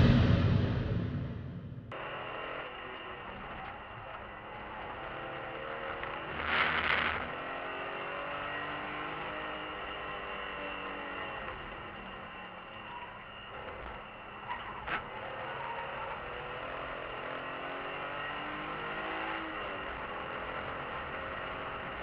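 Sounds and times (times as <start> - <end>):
loud rush of noise: 0.0 - 3.2
car engine from inside cabin: 15.1 - 22.0.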